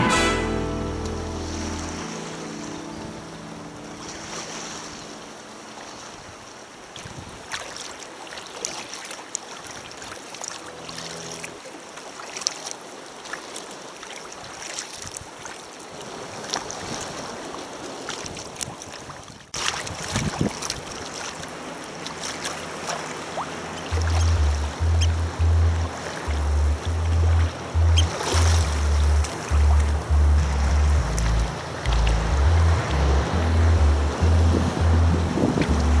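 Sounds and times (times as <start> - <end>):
kayak paddles splashing: 0.0 - 36.0
sea noise: 0.0 - 36.0
water lapping against hull: 3.9 - 36.0.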